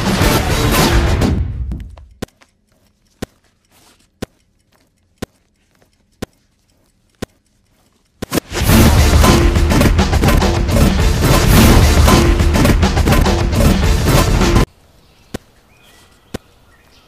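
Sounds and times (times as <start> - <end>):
music: 0.0 - 1.7, 8.4 - 14.7
clock ticking: 1.4 - 14.6.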